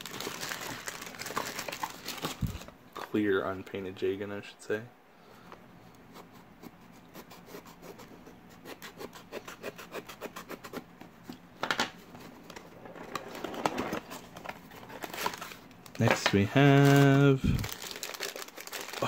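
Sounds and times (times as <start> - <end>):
knife scratching cardboard: 6.1 - 10.9.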